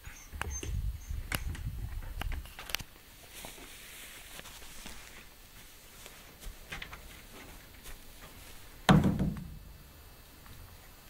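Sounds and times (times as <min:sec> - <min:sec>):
faint clicks and rustles: 0:01.3 - 0:08.8
loud thump: 0:08.9 - 0:09.8.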